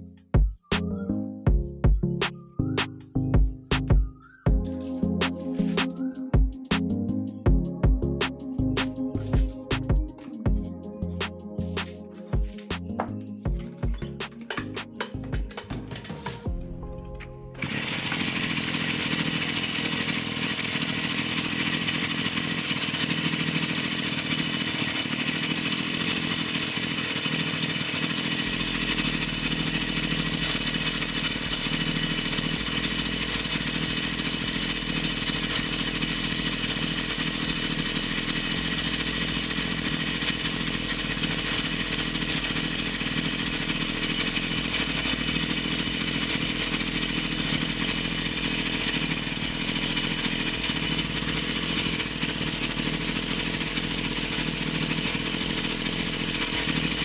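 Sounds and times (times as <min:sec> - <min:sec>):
two-stroke engine running: 0:01.5 - 0:57.0.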